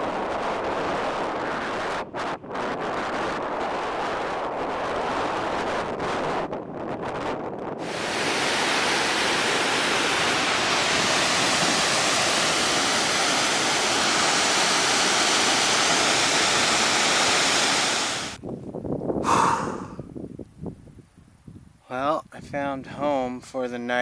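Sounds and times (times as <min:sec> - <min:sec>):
waterfall rushing: 0:07.8 - 0:18.4.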